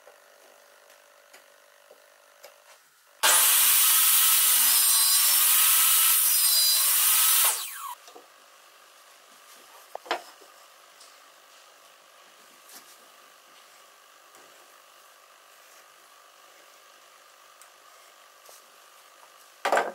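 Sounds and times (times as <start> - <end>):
table saw cutting wood: 3.2 - 8.0.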